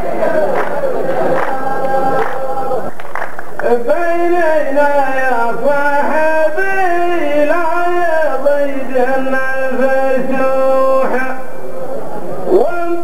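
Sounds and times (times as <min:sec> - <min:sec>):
man chanting into microphone: 0:03.6 - 0:11.7, 0:12.5 - 0:13.0.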